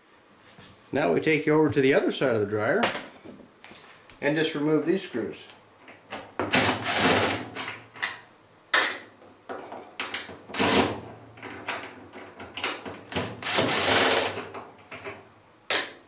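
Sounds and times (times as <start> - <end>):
cordless drill running in bursts: 6.5 - 7.4, 10.6 - 11.0, 13.4 - 14.4.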